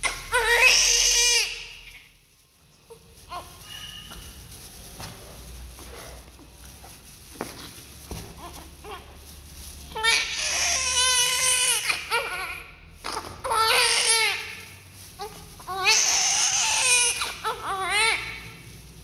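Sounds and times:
baby crying: 0:00.0 - 0:02.0, 0:10.0 - 0:14.6, 0:15.2 - 0:18.5.

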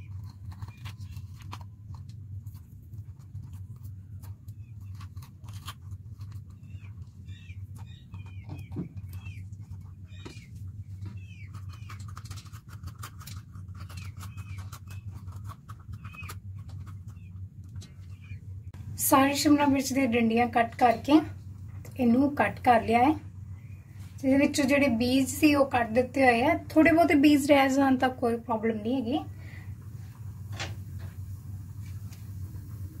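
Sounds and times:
steady low hum: 0:00.0 - 0:33.0
birds chirping: 0:06.4 - 0:12.2, 0:15.9 - 0:18.8.

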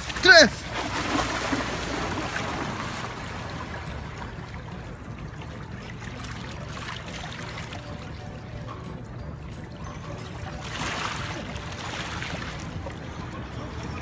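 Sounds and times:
dog splashing in water: 0:00.0 - 0:03.6
small waves lapping on pebbles: 0:00.0 - 0:04.0.

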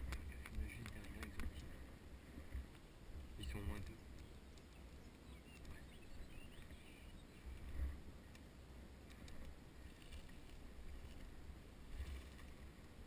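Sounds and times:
light clicks: 0:00.0 - 0:01.7, 0:08.3 - 0:11.3
faint high chirps: 0:04.2 - 0:07.6.

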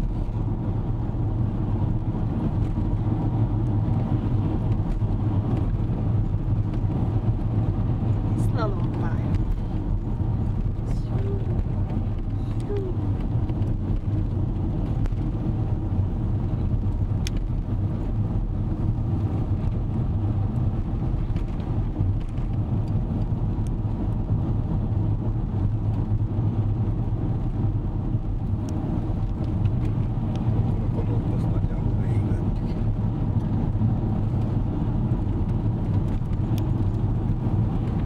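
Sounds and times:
car engine hum: 0:00.0 - 0:38.0
tyre noise on road: 0:00.0 - 0:38.0.

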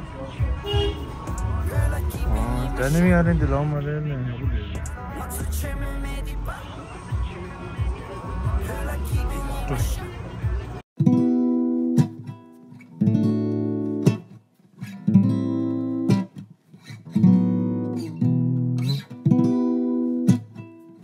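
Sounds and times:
acoustic guitar strumming chords: 0:11.0 - 0:21.0.

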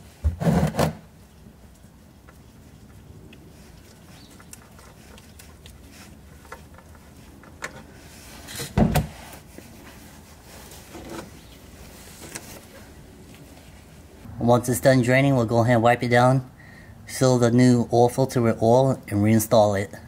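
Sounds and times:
oil filter scraping and clicking: 0:00.4 - 0:13.6.

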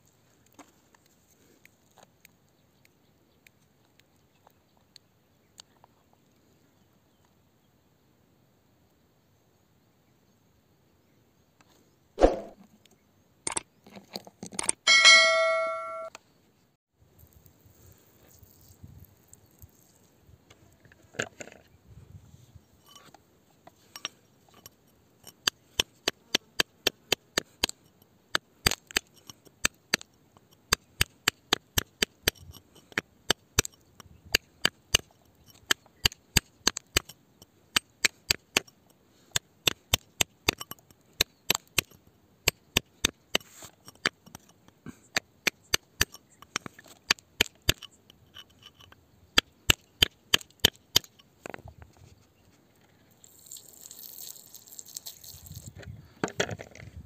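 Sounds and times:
hand tool chipping at rock: 0:23.9 - 0:51.3.

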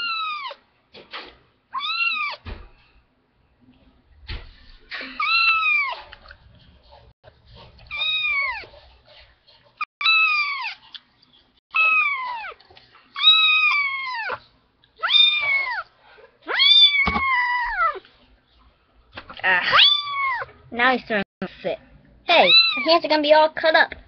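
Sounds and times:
kitten meowing loudly: 0:01.8 - 0:02.4.

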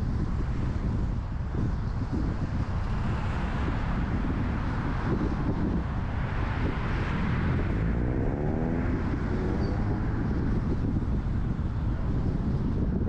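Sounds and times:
road noise: 0:00.0 - 0:13.0
car engine rising in pitch: 0:06.3 - 0:11.0.

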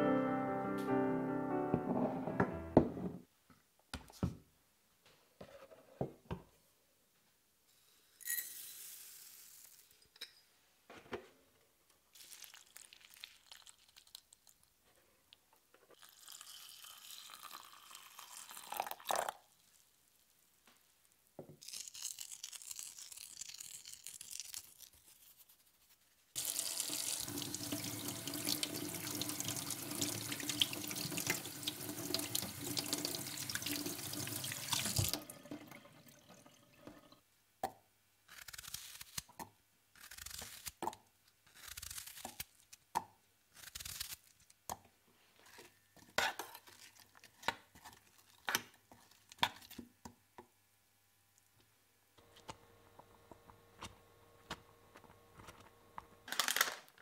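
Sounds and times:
tap running into metal sink: 0:34.4 - 0:35.7.

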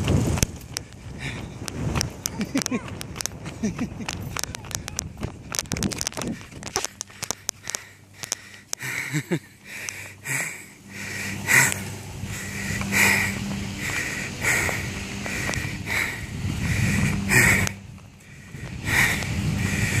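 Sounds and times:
low rumble: 0:00.0 - 0:20.0
person breathing hard: 0:00.8 - 0:01.7, 0:06.2 - 0:20.0.

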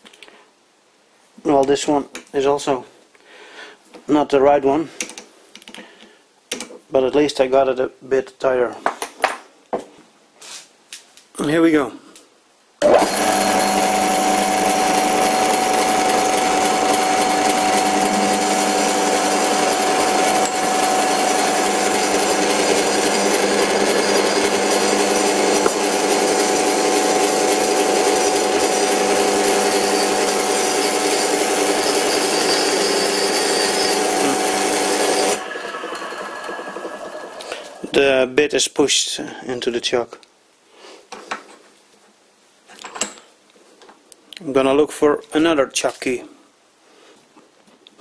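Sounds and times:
drill cutting metal: 0:12.8 - 0:38.0
metal lathe whining: 0:12.8 - 0:38.0.

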